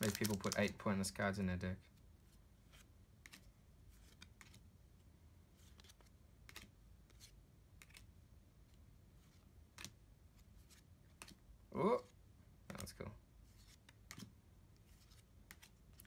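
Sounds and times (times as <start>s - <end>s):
trading cards being flipped: 0.0s - 0.8s, 2.7s - 4.6s, 5.6s - 8.1s, 9.2s - 11.4s, 13.5s - 16.0s.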